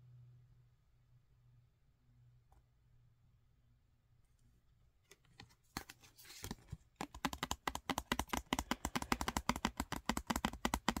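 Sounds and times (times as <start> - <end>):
card rustling: 5.0 - 11.0
fingernails tapping on paper card: 5.8 - 11.0.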